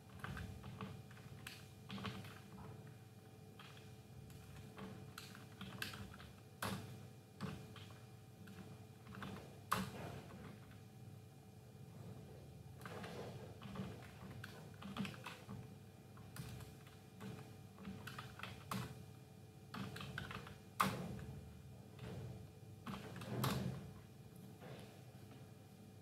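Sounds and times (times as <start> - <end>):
computer keyboard typing: 0.1 - 2.6, 3.6 - 6.8, 7.4 - 10.8, 12.8 - 19.0, 19.7 - 21.2, 22.8 - 23.6.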